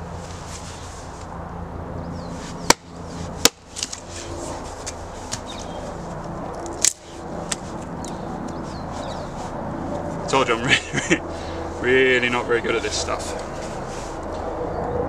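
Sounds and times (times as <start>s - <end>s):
wooden baton striking axe head: 2.6s - 4.0s.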